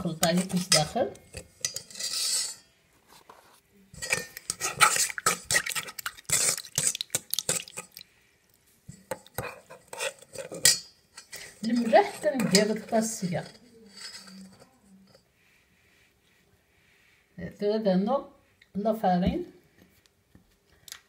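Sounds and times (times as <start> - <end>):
spoon clinking in metal bowl: 0.0 - 2.6, 4.0 - 8.0, 8.9 - 14.6.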